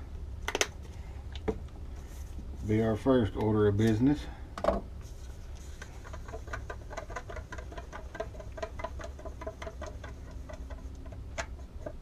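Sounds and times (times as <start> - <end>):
stirrer clicking against cup: 5.8 - 12.0.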